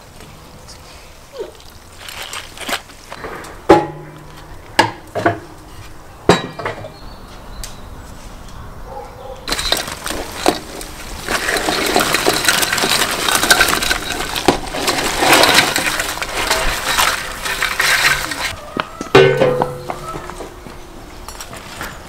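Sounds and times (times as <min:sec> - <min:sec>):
crawfish clattering in basin: 0:01.6 - 0:03.2, 0:09.5 - 0:18.6.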